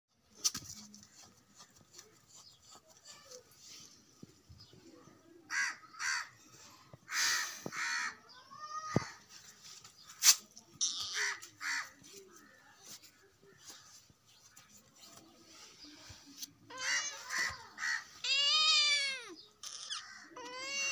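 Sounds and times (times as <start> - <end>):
crows cawing: 5.5 - 6.4, 7.1 - 8.2, 10.9 - 12.0.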